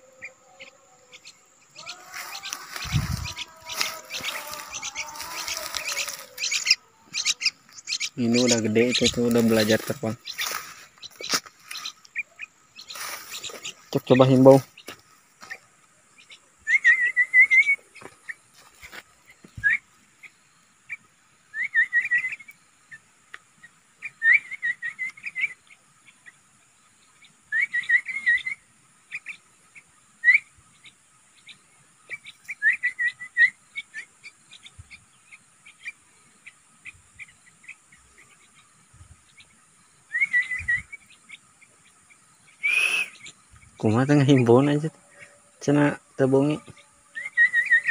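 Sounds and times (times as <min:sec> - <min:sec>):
man whistling warbling call: 0:16.7 - 0:17.8, 0:42.6 - 0:43.2, 0:47.1 - 0:47.9.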